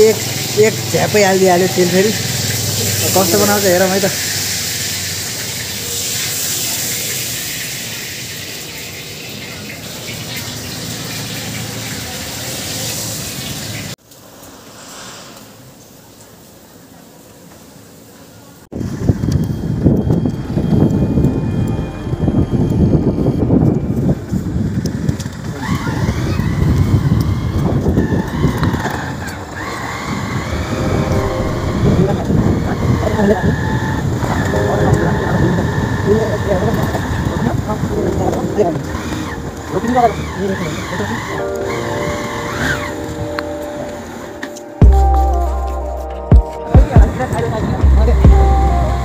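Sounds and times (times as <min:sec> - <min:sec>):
vehicle running on road: 0:00.0 - 0:15.6, 0:18.8 - 0:45.0
noodles sizzling in oil: 0:00.1 - 0:14.5
wind rumbling on microphone: 0:18.7 - 0:39.7
wavering whine: 0:18.8 - 0:24.9, 0:29.8 - 0:49.0.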